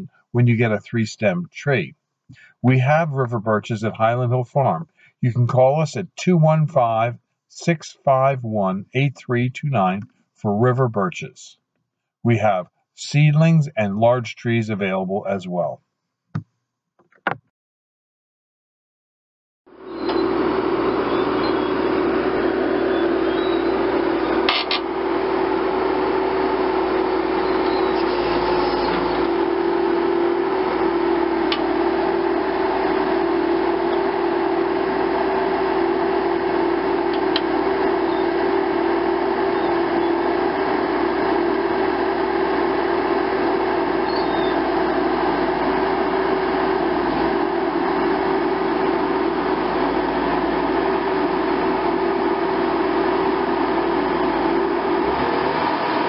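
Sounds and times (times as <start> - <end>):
machine engine and hydraulics: 19.7 - 56.0.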